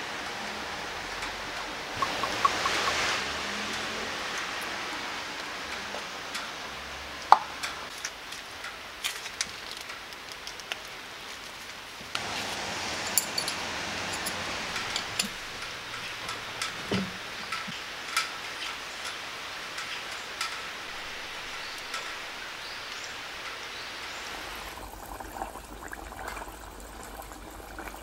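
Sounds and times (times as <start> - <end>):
steady background hiss: 0.0 - 25.8
oil sizzling and crackling: 0.0 - 28.0
plastic packet rustling: 9.0 - 11.8
clinks: 13.0 - 23.9.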